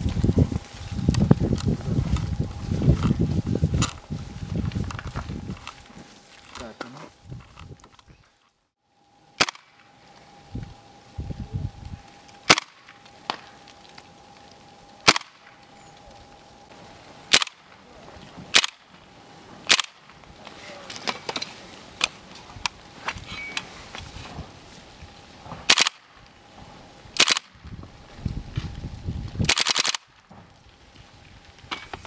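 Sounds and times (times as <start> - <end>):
airsoft rifle shots: 9.4 - 9.8, 12.4 - 13.4, 15.0 - 15.5, 17.3 - 17.7, 18.5 - 18.9, 19.7 - 20.0, 25.6 - 26.1, 27.2 - 27.6, 29.5 - 30.2.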